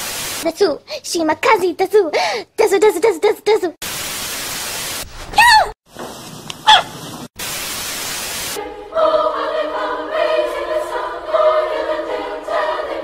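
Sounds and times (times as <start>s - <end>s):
television static hiss: 7.4s - 8.6s
choir singing held chords: 8.6s - 13.0s.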